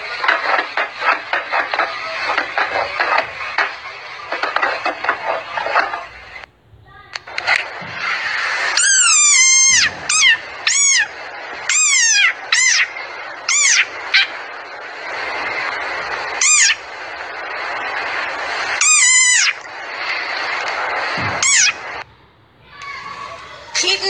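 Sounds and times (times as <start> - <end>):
frog high-pitched squeaks: 8.8 - 11.1, 11.7 - 12.9, 13.5 - 14.3, 16.4 - 16.8, 18.8 - 19.6, 21.4 - 21.8.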